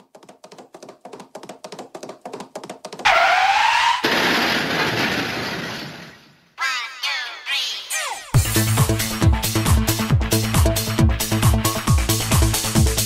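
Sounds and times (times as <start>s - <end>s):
quick cartoon knocks: 0.0s - 3.1s
loud crash: 3.8s - 6.5s.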